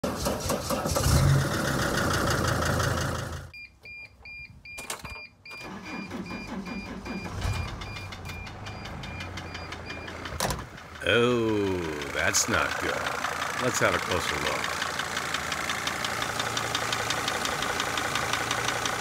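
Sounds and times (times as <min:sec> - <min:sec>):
engine cranking and starting: 0:00.0 - 0:03.5, 0:05.1 - 0:11.0, 0:11.8 - 0:19.0
diesel van engine running: 0:00.1 - 0:03.5, 0:05.6 - 0:19.0
dashboard warning chime beeping: 0:03.5 - 0:10.3.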